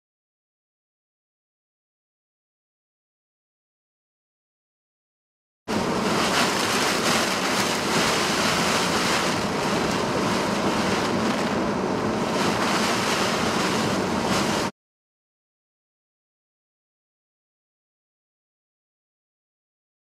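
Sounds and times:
heavy rain beating on vehicle: 5.7 - 14.7
violent wind: 5.7 - 14.7.

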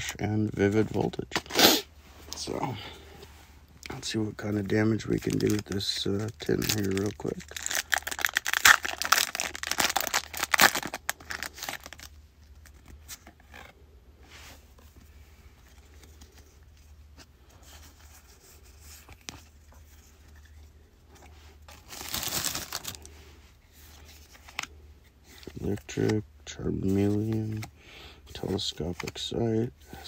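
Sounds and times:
foil wrapper tearing and crinkling: 5.3 - 12.1, 21.9 - 23.0.

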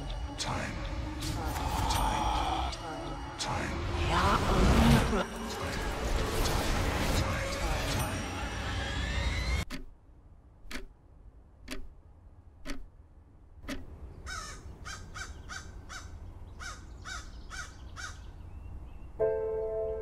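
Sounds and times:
clock ticking: 9.6 - 14.0
crow cawing: 14.2 - 18.2
held musical chord: 19.2 - 20.0.

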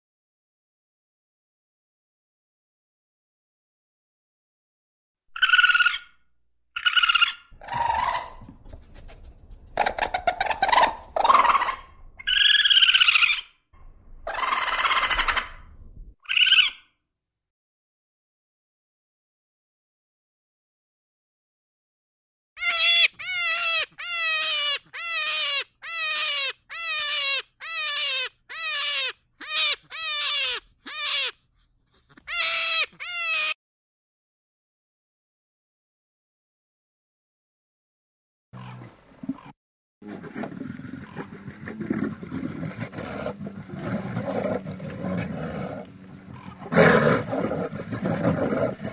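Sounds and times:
hare calling with high cries: 5.4 - 6.2, 6.8 - 8.5, 9.8 - 13.6, 14.2 - 16.9, 22.6 - 31.4, 32.0 - 33.6
small mammal trill calls: 9.8 - 13.5.

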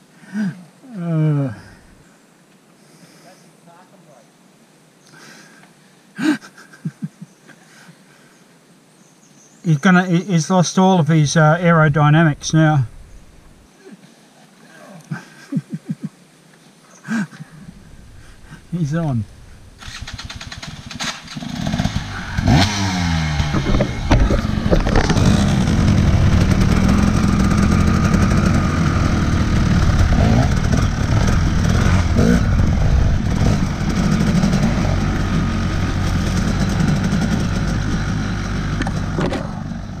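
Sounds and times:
dirt bike engine revving: 17.9 - 40.0
bike clattering over bumps: 19.8 - 39.8.

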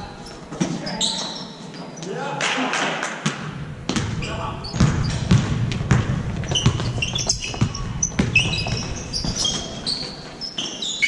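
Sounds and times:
sneakers squeaking: 0.0 - 2.1, 3.2 - 11.0
basketball bouncing on hardwood floor: 3.2 - 4.2, 4.8 - 10.2.

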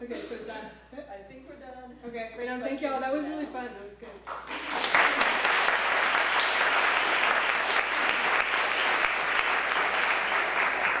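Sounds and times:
audience applauding: 4.3 - 11.0.

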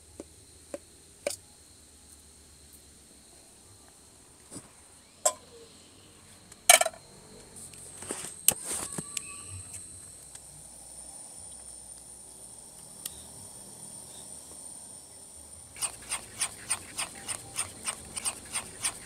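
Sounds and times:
insect chirring: 4.9 - 19.0.

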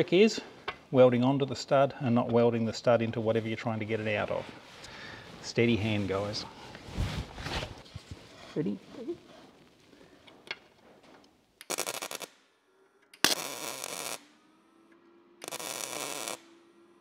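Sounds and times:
welder arc bursts: 11.6 - 12.4, 13.2 - 14.4, 15.4 - 16.6.

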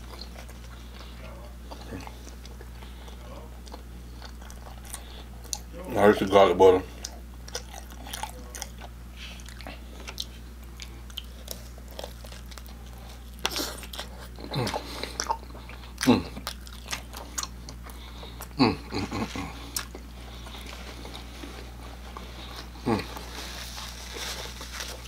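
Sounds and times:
wet chewing: 0.0 - 5.7, 6.9 - 25.0
biting into pizza: 7.0 - 25.0
person humming: 16.0 - 16.4, 18.5 - 19.8, 22.8 - 23.4.

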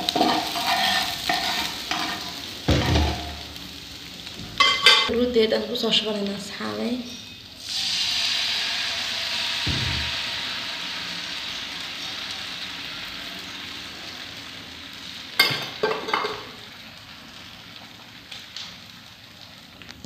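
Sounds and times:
eggs sizzling in frying pan: 0.0 - 20.0
low thump: 9.7 - 10.1.

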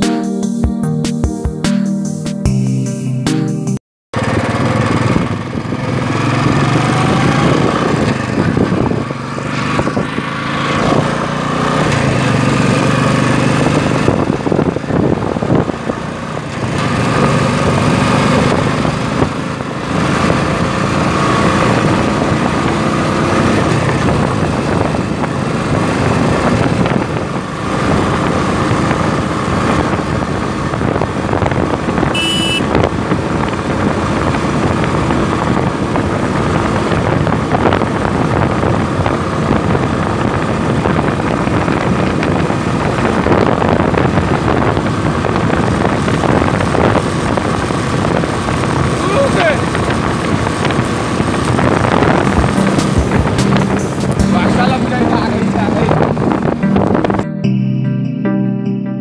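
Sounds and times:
motorcycle engine accelerating: 4.1 - 58.4
short high-pitched sound: 52.2 - 58.2.

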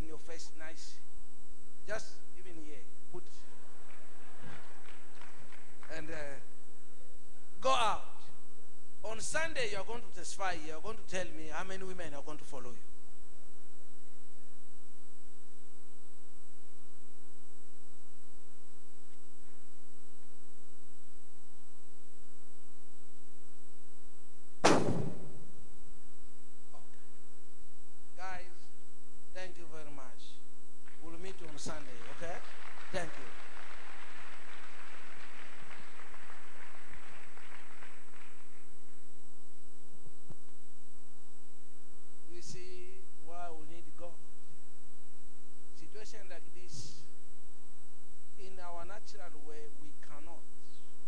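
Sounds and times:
steady electronic hum: 0.0 - 51.0.

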